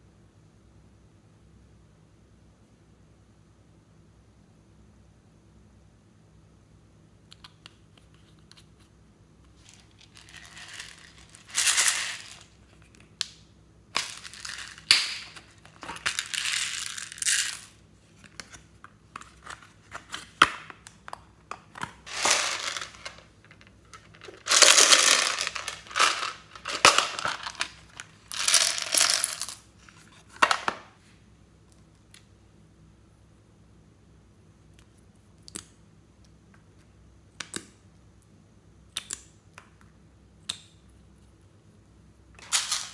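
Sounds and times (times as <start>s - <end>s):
plastic beads dropped onto slime: 9.6s - 12.5s, 14.0s - 17.8s, 22.0s - 23.3s, 24.0s - 29.6s
plastic packaging clicking and crunching: 21.8s - 29.5s.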